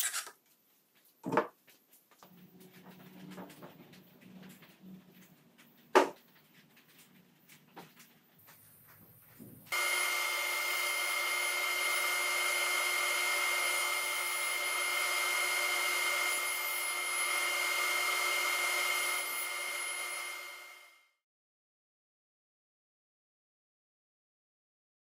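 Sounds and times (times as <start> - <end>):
table saw whining: 9.7 - 21.1.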